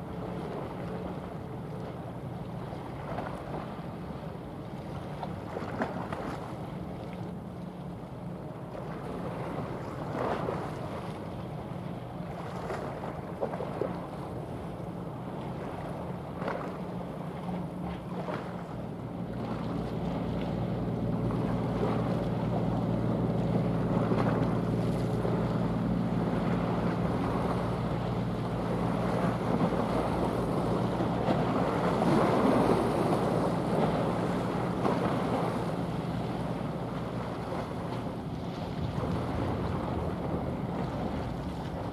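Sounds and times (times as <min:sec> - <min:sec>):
ship engine drone: 0:00.0 - 0:41.9
wind on microphone: 0:23.4 - 0:41.9.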